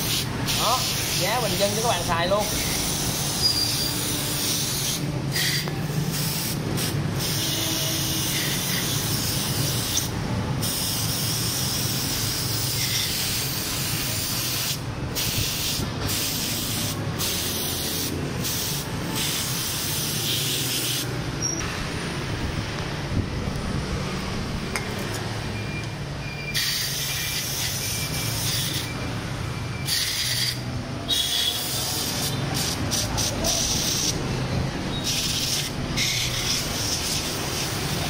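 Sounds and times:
aerosol spray hissing: 0.0s - 21.2s, 31.2s - 34.2s, 35.0s - 38.0s.

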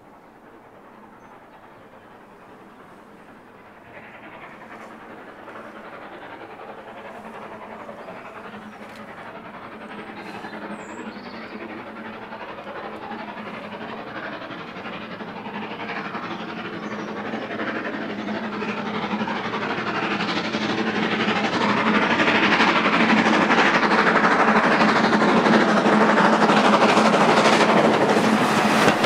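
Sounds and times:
steam locomotive approaching: 0.0s - 29.0s.

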